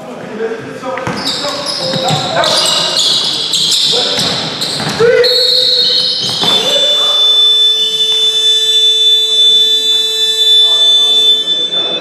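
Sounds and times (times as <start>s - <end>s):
scoreboard buzzer blare: 5.3s - 12.0s.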